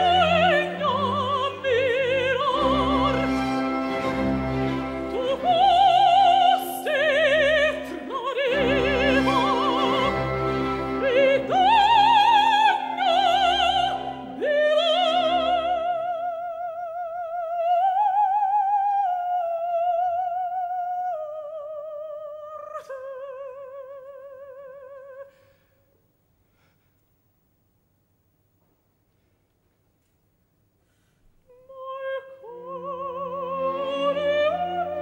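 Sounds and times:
orchestral chords: 0.0 - 6.4, 7.4 - 14.6
woman singing operatically: 0.0 - 25.4, 31.5 - 35.0.

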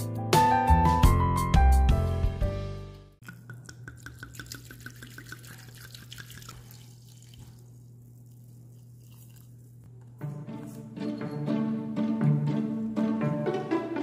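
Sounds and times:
string music: 10.2 - 14.0.

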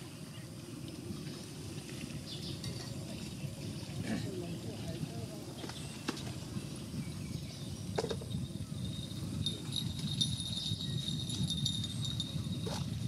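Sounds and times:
thin high jingling ring: 8.1 - 13.0.

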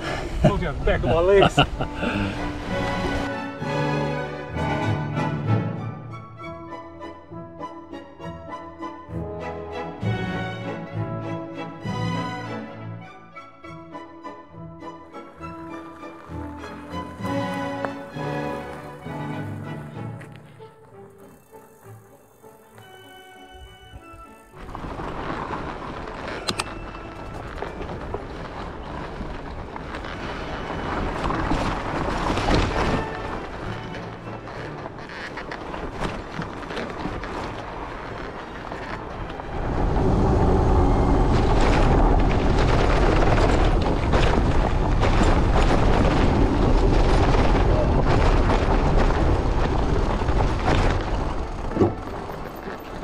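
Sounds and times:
bike tyres rolling on dirt: 0.0 - 4.6, 15.0 - 53.0
wind rushing over microphone: 39.0 - 51.7.

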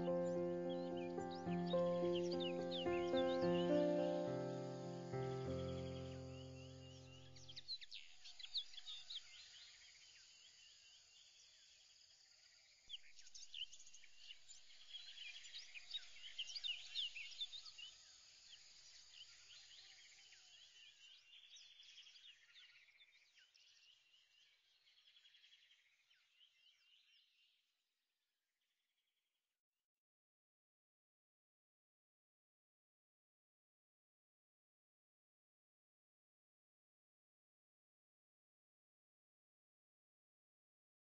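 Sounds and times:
small birds chirping: 0.0 - 27.6.

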